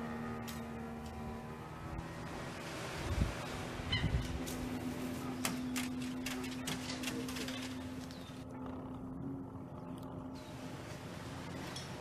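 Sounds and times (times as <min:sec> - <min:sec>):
steady low hum: 0:00.0 - 0:12.0
bird harsh honking calls: 0:03.8 - 0:04.4.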